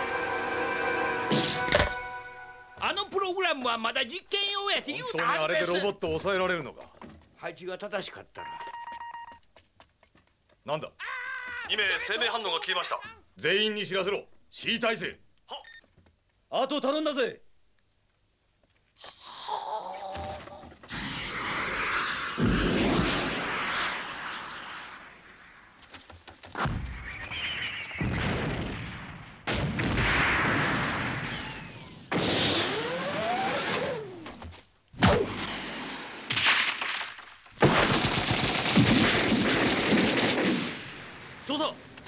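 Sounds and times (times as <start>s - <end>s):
explosions: 20.9s - 25.8s, 26.6s - 34.2s, 35.0s - 42.0s
sliding whines: 32.5s - 34.6s
automatic rifle fire: 37.6s - 40.8s.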